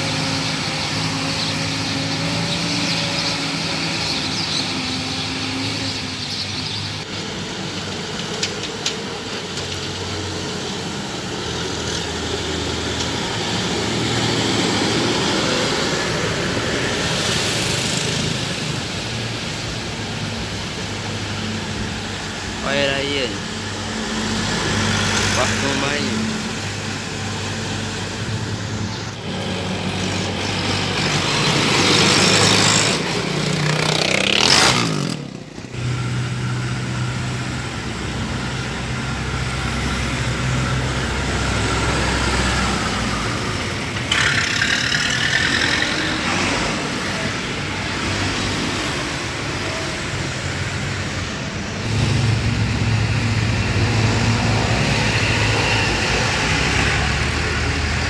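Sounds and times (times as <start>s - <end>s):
tractor engines running: 0.0s - 58.0s.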